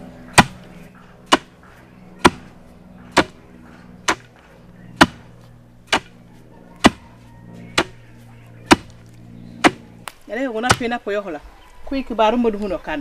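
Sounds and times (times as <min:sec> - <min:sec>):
wooden pestle pounding in mortar: 0:08.7 - 0:08.9.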